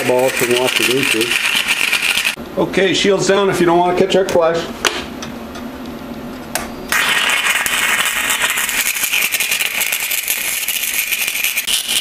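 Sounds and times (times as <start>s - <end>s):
welding arc crackling: 0.0s - 2.4s, 6.9s - 12.0s.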